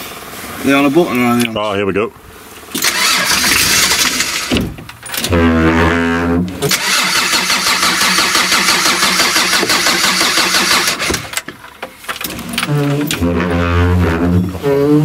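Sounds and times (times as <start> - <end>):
diesel engine starter: 2.7 - 5.5, 6.6 - 11.5
diesel engine clatter: 6.6 - 11.5.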